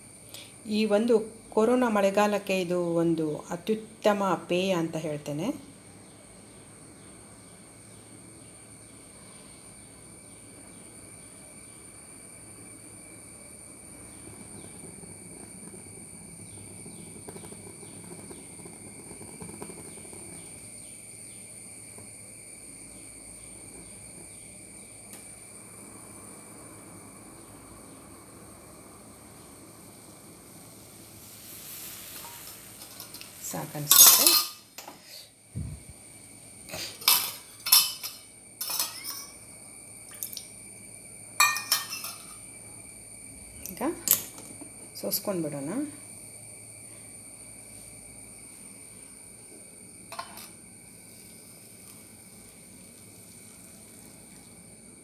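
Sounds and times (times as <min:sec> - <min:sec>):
gas burner noise: 0:00.0 - 0:55.0
steady high whine: 0:06.5 - 0:55.0
liquid boiling: 0:10.1 - 0:55.0
utensil clinking on steel pot: 0:33.9 - 0:34.7, 0:37.0 - 0:39.4, 0:41.4 - 0:42.4, 0:50.2 - 0:50.5.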